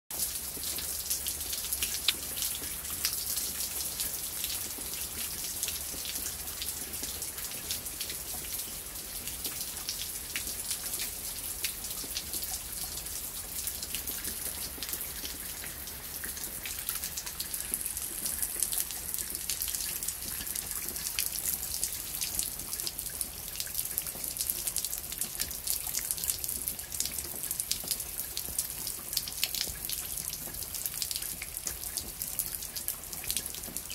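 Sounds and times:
heavy rain on leaves and paving: 0:00.1 - 0:33.9.

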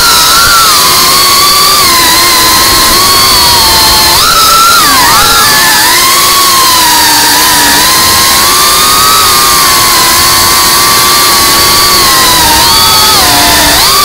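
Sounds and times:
drone motors and propellers whining: 0:00.0 - 0:14.0.

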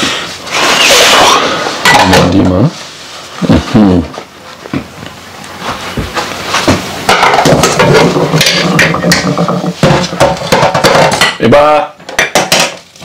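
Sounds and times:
dishes and utensils knocking: 0:01.8 - 0:02.5, 0:07.0 - 0:13.0.

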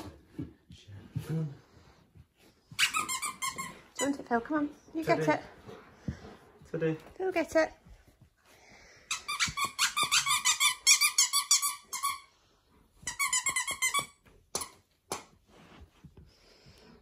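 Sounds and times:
dog toy squeaker squeaking: 0:02.8 - 0:03.8, 0:09.1 - 0:12.3, 0:13.0 - 0:14.2.

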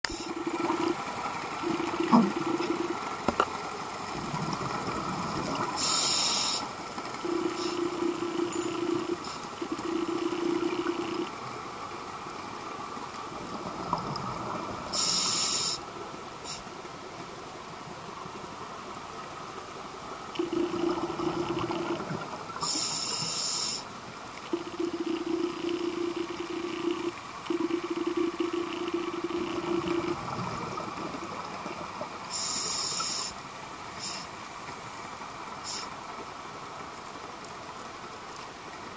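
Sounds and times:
diver's exhaled regulator bubbles: 0:01.6 - 0:03.0, 0:20.4 - 0:22.2, 0:24.5 - 0:31.8
underwater hiss: 0:05.6 - 0:06.7, 0:14.9 - 0:16.7, 0:22.6 - 0:23.9, 0:32.2 - 0:33.4, 0:34.0 - 0:34.4, 0:35.6 - 0:36.0.

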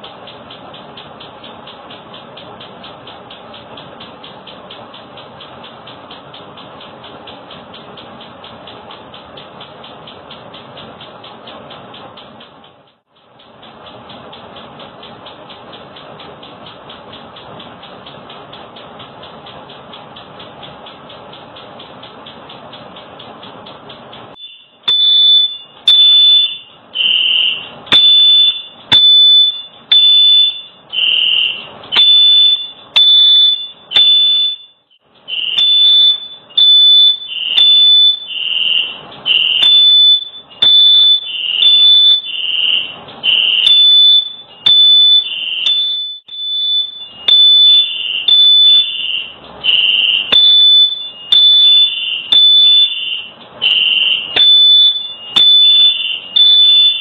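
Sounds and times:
smoke alarm beeping: 0:24.2 - 0:57.0.

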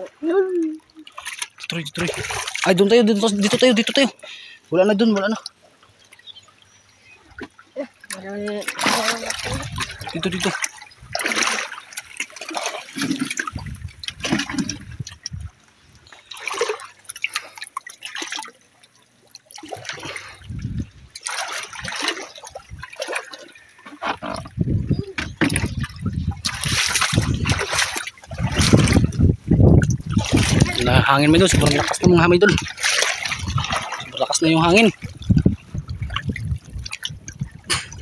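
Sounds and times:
seawater splashing among rocks: 0:00.9 - 0:06.4, 0:07.3 - 0:38.0
wind gusts buffeting microphone: 0:09.2 - 0:11.2, 0:13.5 - 0:15.6, 0:20.4 - 0:21.1, 0:24.2 - 0:38.0.

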